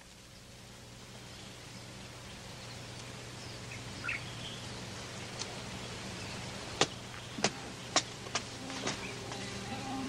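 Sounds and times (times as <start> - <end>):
low hum: 0.0 - 10.0
steady hiss: 0.0 - 10.0
faint bird chirps: 1.2 - 8.0, 8.7 - 10.0.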